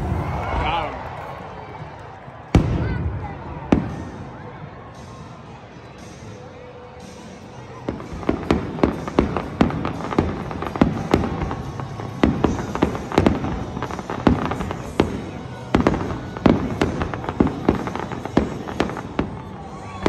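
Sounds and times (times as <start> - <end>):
fireworks bursting with bangs: 7.8 - 20.0
fireworks crackle: 7.8 - 20.0.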